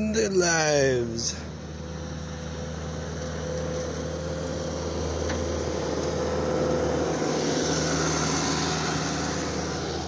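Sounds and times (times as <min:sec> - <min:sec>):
diesel engine hum with whine: 0:00.0 - 0:10.0.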